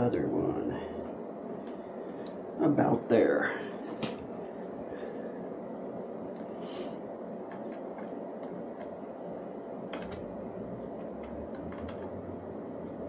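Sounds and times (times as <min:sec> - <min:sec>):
steady background hum: 0:00.0 - 0:13.0
screw ticks and clicks: 0:07.5 - 0:09.0, 0:10.8 - 0:12.2.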